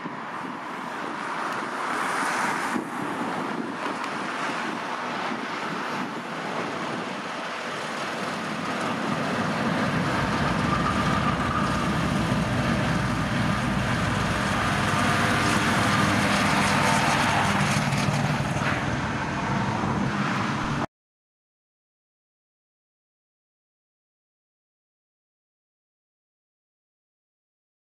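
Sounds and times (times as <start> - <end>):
diesel locomotives passing: 0.0 - 20.9.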